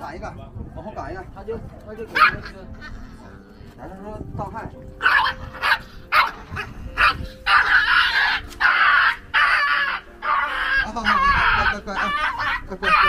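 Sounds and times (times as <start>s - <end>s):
puppy barking: 2.1s - 3.1s, 5.0s - 13.0s
puppy yelping: 2.1s - 3.2s, 5.0s - 13.0s.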